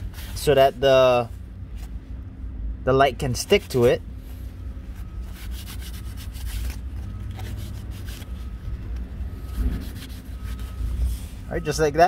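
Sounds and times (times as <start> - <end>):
towel wiping plastic: 5.1 - 8.6.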